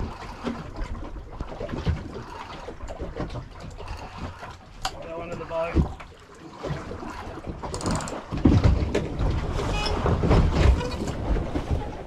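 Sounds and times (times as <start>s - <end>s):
water slapping against boat hull: 0.0s - 12.0s.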